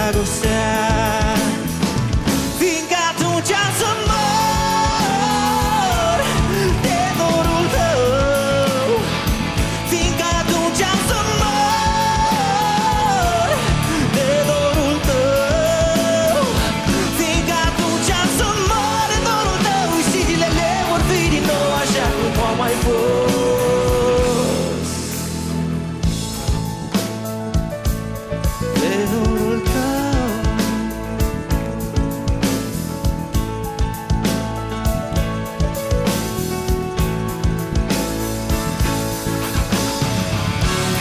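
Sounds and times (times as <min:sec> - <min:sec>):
man singing: 0:00.0 - 0:25.4, 0:28.5 - 0:31.7
drums and cymbals: 0:00.0 - 0:41.0
live rock band playing: 0:00.0 - 0:41.0.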